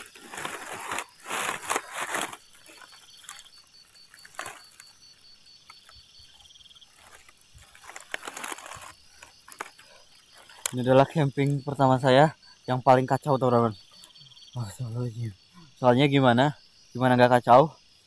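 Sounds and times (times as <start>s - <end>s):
dry leaves and grass rustling: 0.0s - 11.6s
faint crackles: 0.0s - 11.6s
faint high pulsing chirp: 9.0s - 16.6s.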